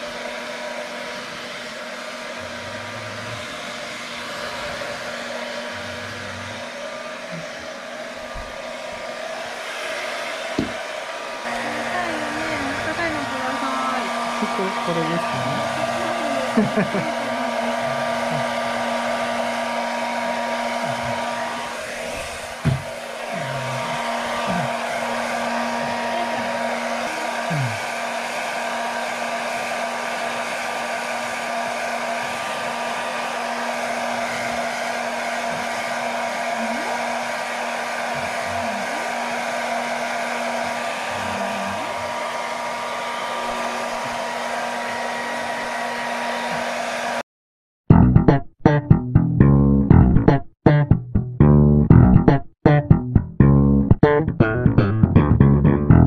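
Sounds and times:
hair dryer running: 0:00.0 - 0:47.3
single knock: 0:10.6 - 0:10.8.

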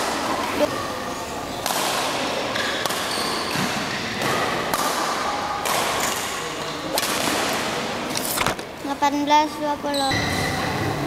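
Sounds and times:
rackets striking shuttlecock: 0:01.6 - 0:08.2.

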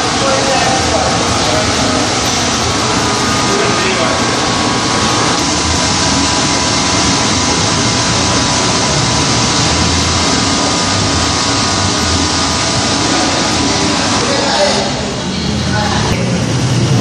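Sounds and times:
fan blowing air: 0:00.0 - 0:17.0.

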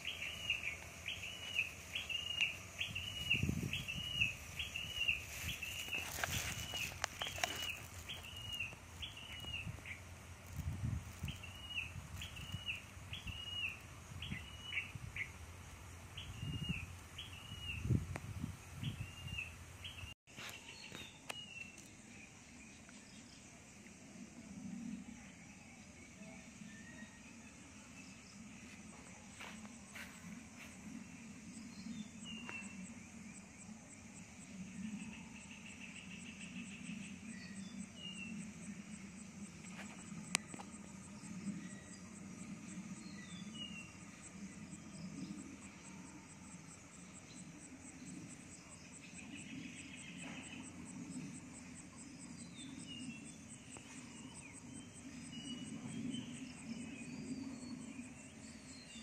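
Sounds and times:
low steady rumble: 0:00.0 - 0:20.2
birds chirping: 0:00.0 - 0:23.7
insects chirring: 0:00.0 - 0:59.0.

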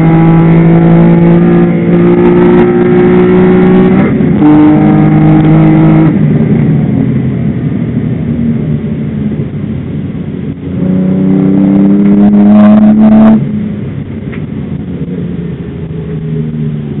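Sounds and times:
car engine running hard: 0:00.0 - 0:17.0.

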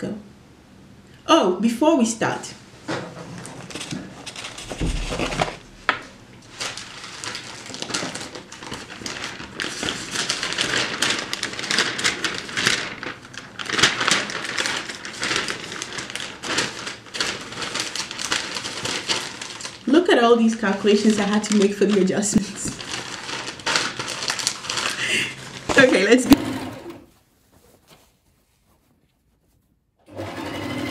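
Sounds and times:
paper rustling and crinkling: 0:03.1 - 0:26.3, 0:27.0 - 0:29.8.

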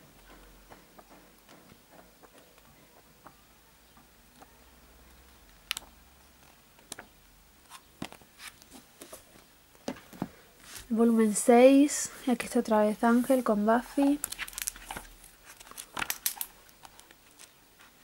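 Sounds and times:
paper pages flipping: 0:07.7 - 0:09.2, 0:13.2 - 0:18.0.

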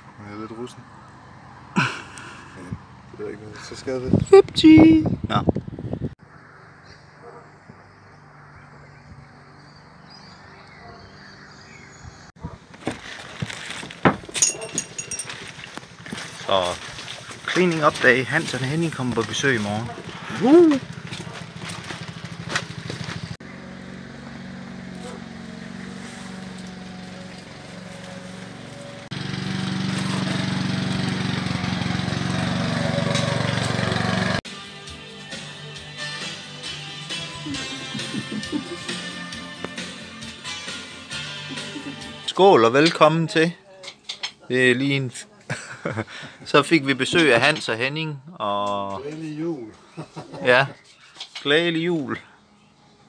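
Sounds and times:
lawn mower engine running: 0:15.2 - 0:34.4.

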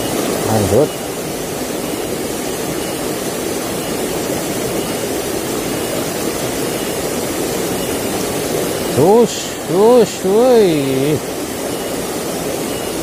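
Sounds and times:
river water rushing over rocks: 0:00.0 - 0:13.0.

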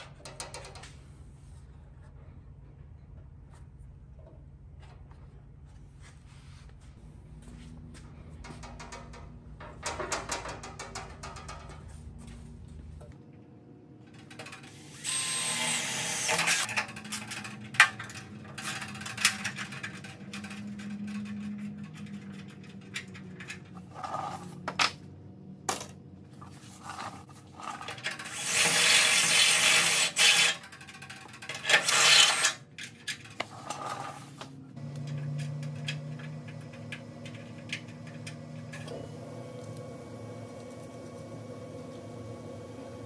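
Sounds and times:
cordless drill boring metal: 0:14.9 - 0:16.7, 0:28.2 - 0:30.6, 0:31.6 - 0:32.6.

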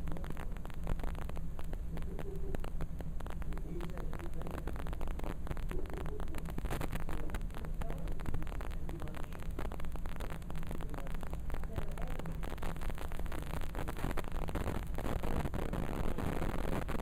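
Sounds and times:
crackling static: 0:00.0 - 0:17.0
low electrical hum: 0:00.0 - 0:17.0.

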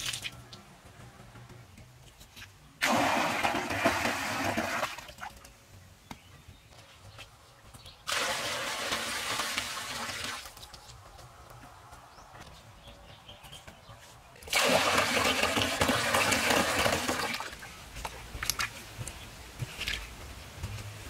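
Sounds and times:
water splashing into pond: 0:00.0 - 0:00.4, 0:02.8 - 0:05.5, 0:08.0 - 0:10.6, 0:14.4 - 0:20.8.

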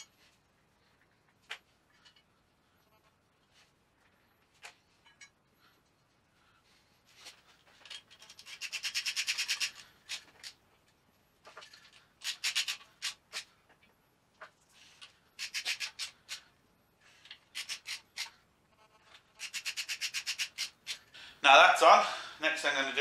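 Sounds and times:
socket ratchet clicking: 0:12.2 - 0:13.4, 0:17.5 - 0:18.3.

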